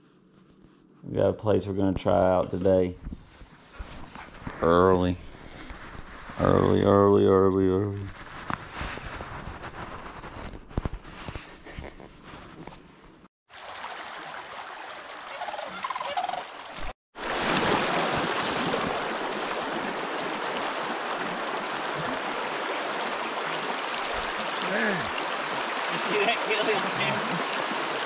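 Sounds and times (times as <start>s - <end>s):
stream water rushing: 13.5s - 28.0s.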